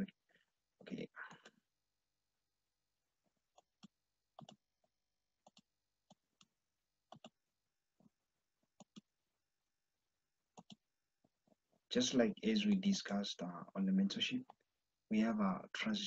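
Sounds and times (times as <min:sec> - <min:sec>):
computer mouse clicks: 0:03.6 - 0:04.6, 0:05.4 - 0:06.5, 0:07.1 - 0:07.4, 0:10.6 - 0:10.8.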